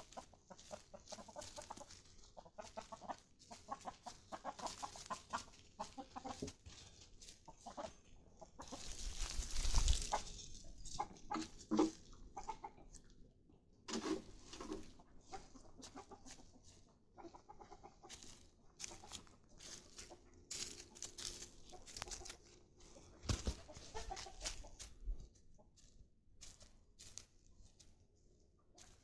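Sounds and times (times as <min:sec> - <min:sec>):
chickens clucking: 0:00.0 - 0:28.0, 0:28.7 - 0:29.0
rustles and knocks: 0:23.2 - 0:24.6.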